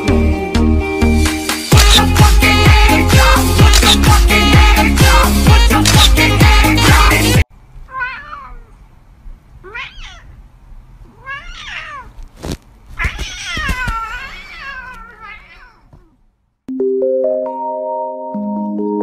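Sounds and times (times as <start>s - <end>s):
cat meowing: 7.9s - 8.8s, 9.6s - 10.4s, 11.0s - 12.2s, 12.9s - 16.2s.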